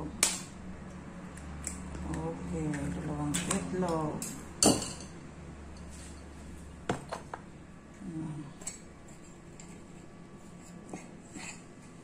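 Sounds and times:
dishes clinking on tabletop: 4.6s - 5.2s.

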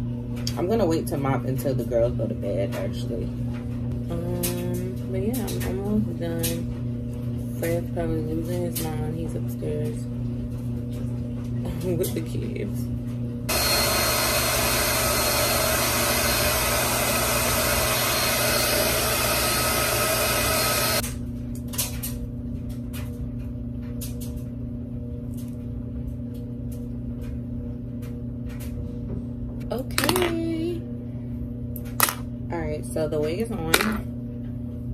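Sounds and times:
washer and dryer humming: 0.0s - 34.9s
hair dryer blowing: 13.5s - 21.0s.

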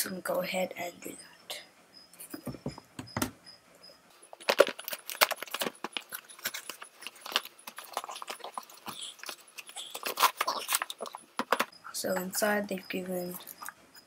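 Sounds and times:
cardboard box rustling and clicking: 4.4s - 9.0s.

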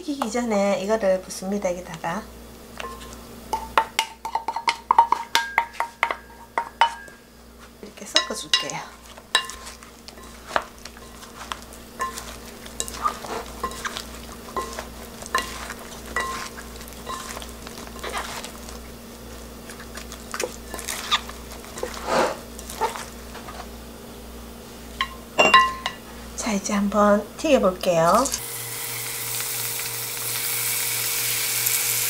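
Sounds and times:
wet batter squishing: 9.0s - 23.2s
wooden utensils clinking on glass: 25.0s - 26.0s.

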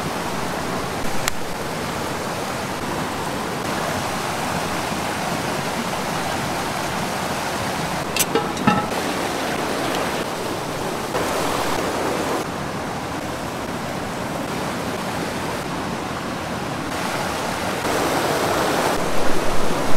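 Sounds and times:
stream rushing over rocks: 7.4s - 19.9s.

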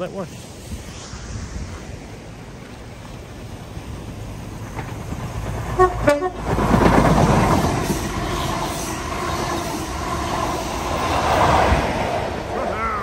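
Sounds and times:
train wheels rumbling on rail: 3.7s - 13.0s
two-note train horn: 5.8s - 6.4s.

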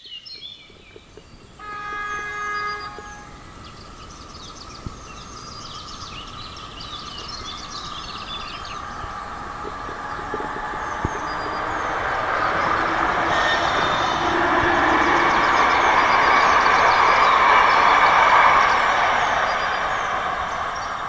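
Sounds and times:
train wheels rolling on rail: 0.0s - 21.0s.

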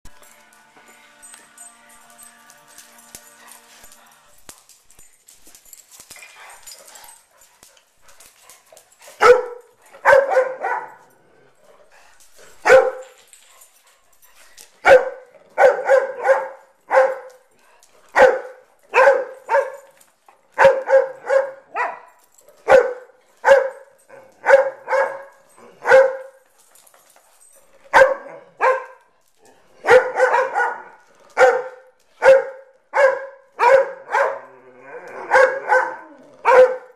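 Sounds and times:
dog barking: 9.2s - 11.1s, 12.6s - 13.1s, 14.8s - 17.4s, 18.1s - 19.9s, 20.6s - 26.4s, 27.9s - 29.0s, 29.8s - 34.5s, 35.2s - 36.9s.

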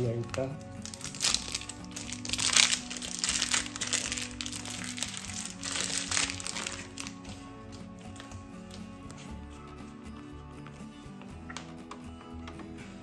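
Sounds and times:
background music: 0.0s - 13.0s
plastic crinkling: 0.2s - 7.3s.

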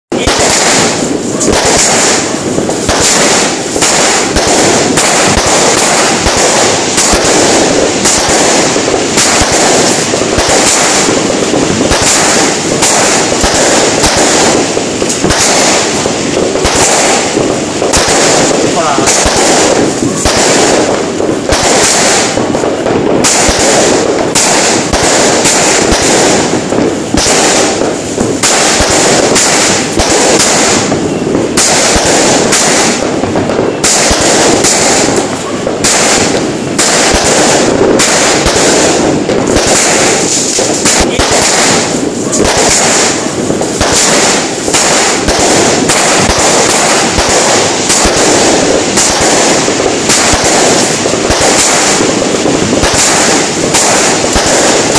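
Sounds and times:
fireworks bangs and crackling: 0.0s - 54.9s
fireworks hiss: 0.1s - 54.9s.

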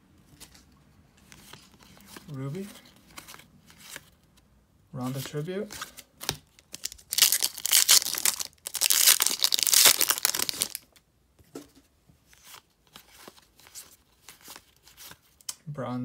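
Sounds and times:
foil wrapper crinkling and tearing: 6.6s - 10.9s.

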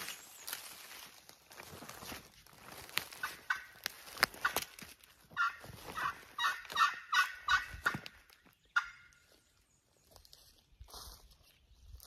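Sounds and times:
turkey calling: 3.1s - 4.7s, 5.3s - 9.4s.

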